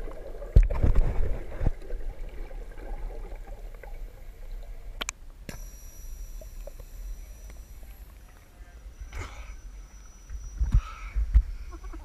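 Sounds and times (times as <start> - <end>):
underwater bubbles gurgling: 0.0 - 5.1.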